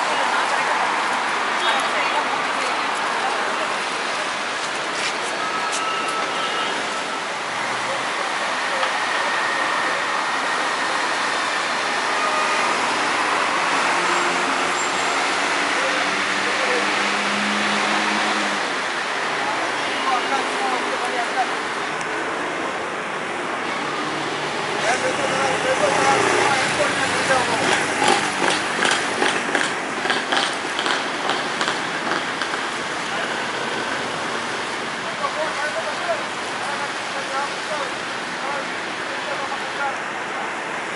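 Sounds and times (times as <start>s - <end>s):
city traffic noise: 0.0s - 40.9s
irregular clicks and taps: 27.7s - 32.6s.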